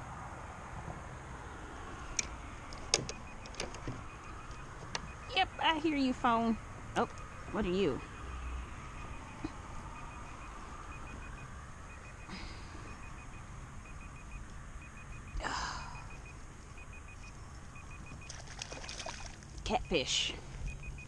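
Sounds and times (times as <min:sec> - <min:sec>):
low steady hum: 0:00.0 - 0:21.0
phone beeping: 0:03.0 - 0:06.3, 0:07.0 - 0:18.5, 0:19.7 - 0:21.0.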